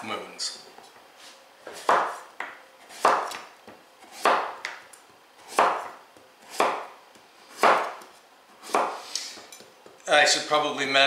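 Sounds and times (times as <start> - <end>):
knife slicing squash on cutting board: 1.6 - 4.8, 5.4 - 9.6.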